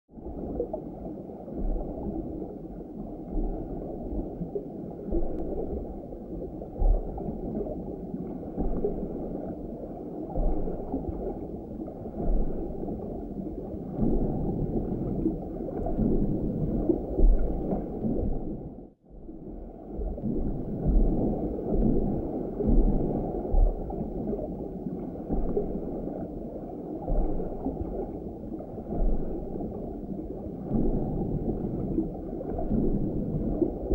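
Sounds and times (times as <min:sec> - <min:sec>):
underwater churning water: 0:00.1 - 0:33.9
dull low thumps: 0:13.9 - 0:19.3, 0:20.0 - 0:24.5.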